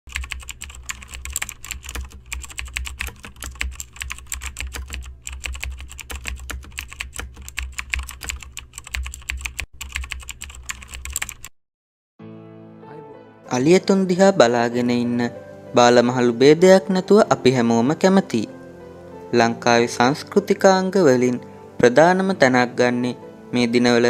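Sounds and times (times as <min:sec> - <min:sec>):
rapid typing on keyboard: 0:00.1 - 0:11.5.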